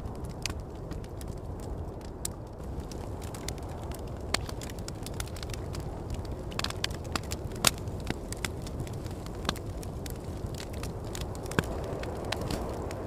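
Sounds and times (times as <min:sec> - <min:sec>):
campfire crackling and popping: 0:00.0 - 0:13.0
low rumble of wind: 0:00.0 - 0:13.0.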